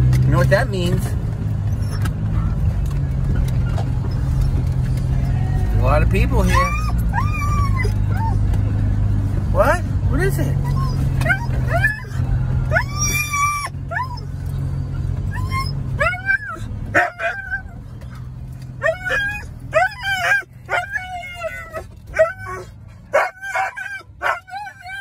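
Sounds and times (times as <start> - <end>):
low car engine hum: 0.0 - 25.0
dog yipping and whining: 1.6 - 5.5, 6.2 - 8.6, 10.5 - 25.0
dog howling: 6.5 - 8.4, 15.3 - 17.7, 18.8 - 25.0.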